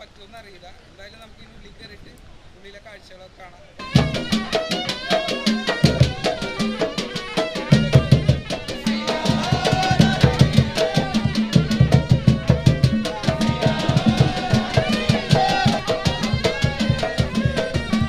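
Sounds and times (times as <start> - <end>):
large hand drums beating: 3.8 - 18.0
wavering melody line: 3.8 - 18.0.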